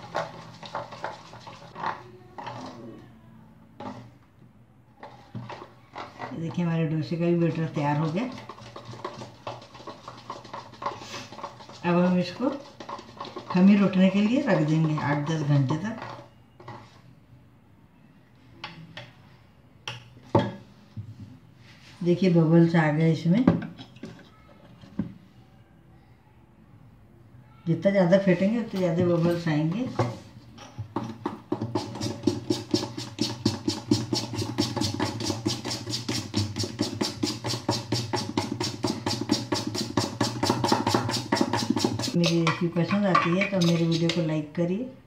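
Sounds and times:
batter beaten in metal bowl: 0.0 - 3.0, 5.0 - 16.9, 28.7 - 44.3
spoon and steel bowls clinking: 42.2 - 44.2.

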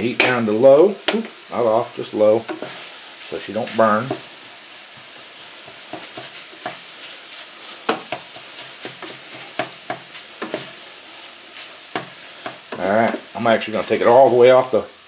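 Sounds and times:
ground beef sizzling in a skillet: 0.0 - 15.0
utensil scraping and clicking on pan: 2.4 - 2.8, 5.6 - 6.9, 7.8 - 10.8, 11.6 - 13.3.

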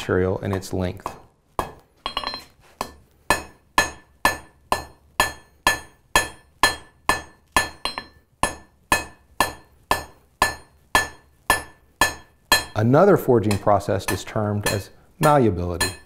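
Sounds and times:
hammer striking iron on anvil: 0.5 - 12.8, 13.4 - 16.0
anvil ringing: 13.4 - 16.0.

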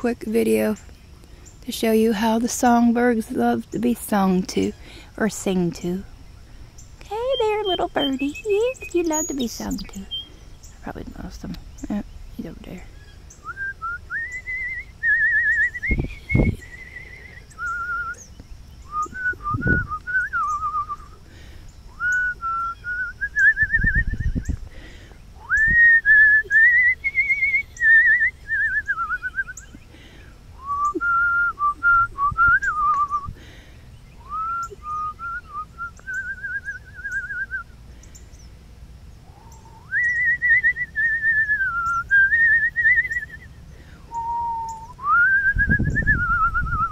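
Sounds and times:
person whistling a slow tune: 13.4 - 18.3, 18.9 - 21.2, 22.0 - 24.6, 25.4 - 29.7, 30.6 - 33.3, 34.2 - 37.7, 39.4 - 43.5, 44.1 - 46.9.

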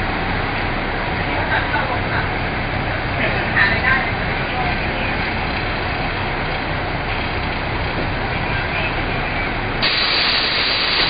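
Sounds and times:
low outdoor rumble: 0.0 - 11.0
bright hiss: 9.8 - 11.0.

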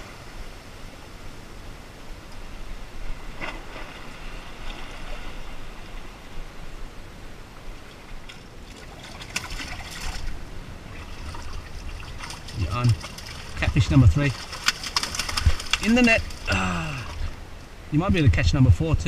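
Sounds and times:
seawater trickling among rocks: 7.8 - 17.4.

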